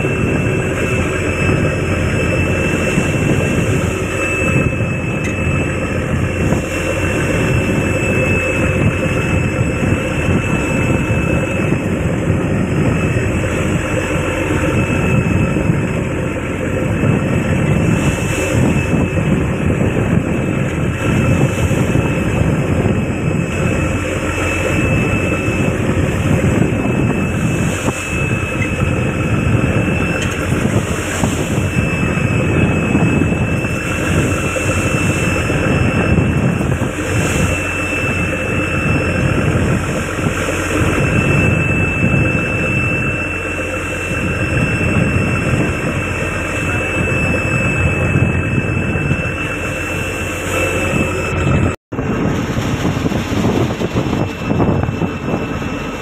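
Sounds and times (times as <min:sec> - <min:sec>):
diesel engine droning: 0:00.0 - 0:56.0
sea noise: 0:00.0 - 0:56.0
wind: 0:00.0 - 0:56.0.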